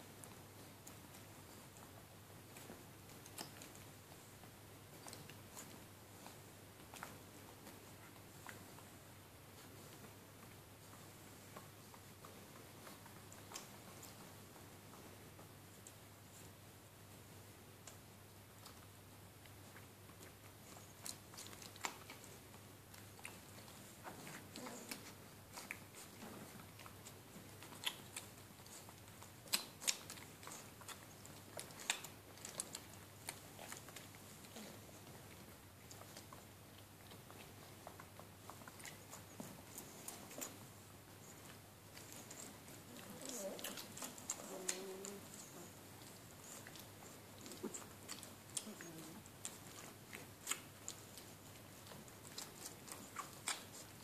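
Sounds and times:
dog licking with wet smacking: 17.9s - 54.0s
puppies suckling: 19.4s - 54.0s.

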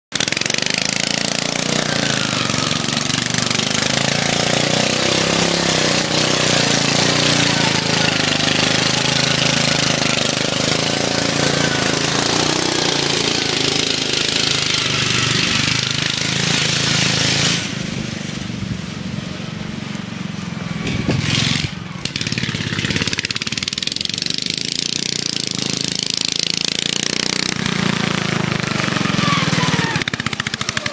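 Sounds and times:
lawn tractor engine running hard: 0.1s - 30.9s.

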